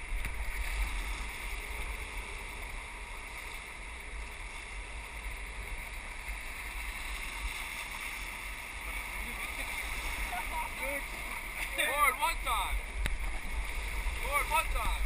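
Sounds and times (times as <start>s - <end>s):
low rumble on microphone: 0.0s - 11.7s
whitewater rapids rushing: 8.9s - 15.0s.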